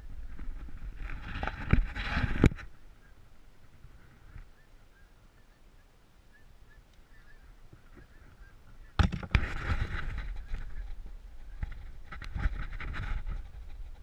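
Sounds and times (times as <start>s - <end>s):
faint animal calls: 2.8s - 9.0s.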